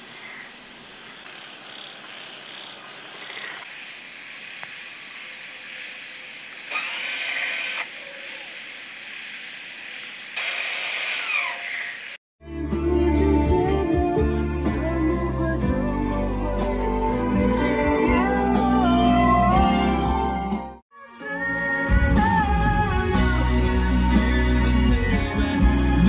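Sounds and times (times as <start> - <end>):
insects and frogs chorus: 0.0 - 12.2.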